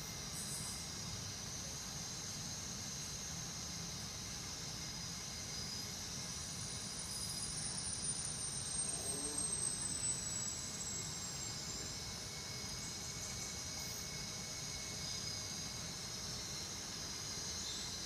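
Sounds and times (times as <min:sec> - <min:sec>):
faint high whistle: 0:08.0 - 0:12.0.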